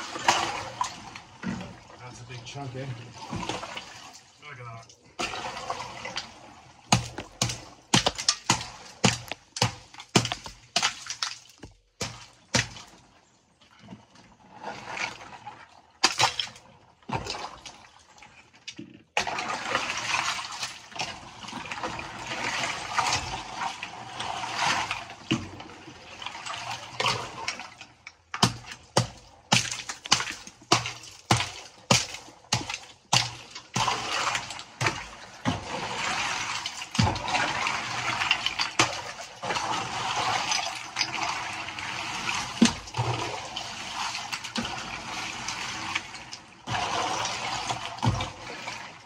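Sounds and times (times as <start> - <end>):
water splashing: 0.0 - 13.2, 14.6 - 18.1, 19.2 - 49.0
water and ice sloshing: 0.0 - 49.0
hammer cracking ice: 6.9 - 12.9, 16.0 - 16.4, 28.4 - 33.9.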